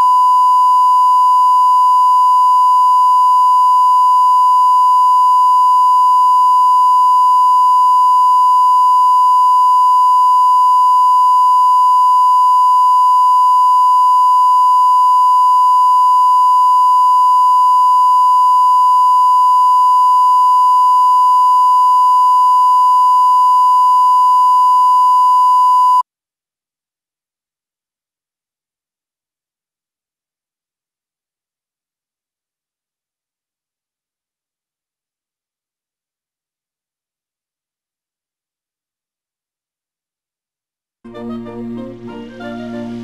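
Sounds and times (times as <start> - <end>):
pure line-up tone beep: 0.0 - 26.0.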